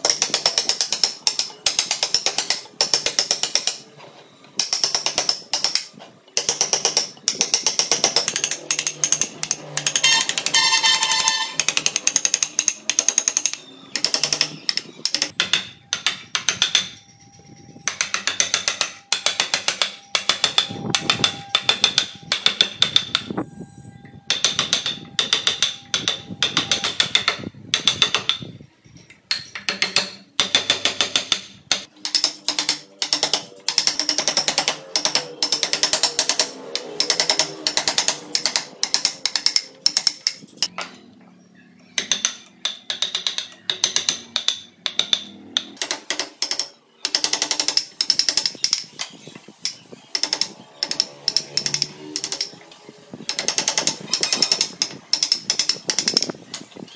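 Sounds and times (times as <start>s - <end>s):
mallet tapping chisel into wood: 24.3s - 28.4s, 42.0s - 48.8s.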